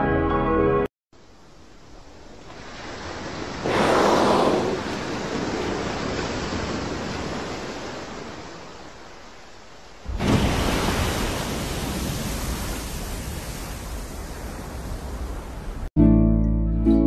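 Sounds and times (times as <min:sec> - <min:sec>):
rushing spray and surf: 0:01.2 - 0:15.9
water rushing off whale: 0:02.4 - 0:08.2
loud splash: 0:10.0 - 0:14.8.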